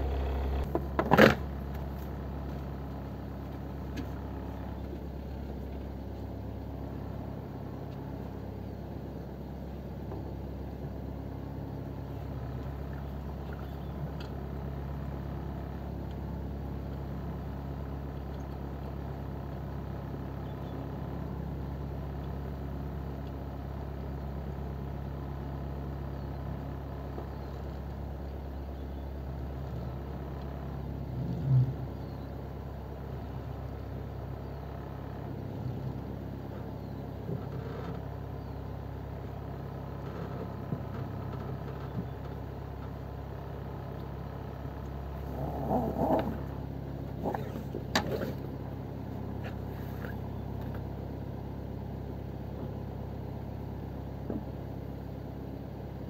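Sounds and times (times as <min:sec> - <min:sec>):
boat engine idling: 0:00.0 - 0:56.0
knocks and clatters on boat: 0:47.1 - 0:48.6.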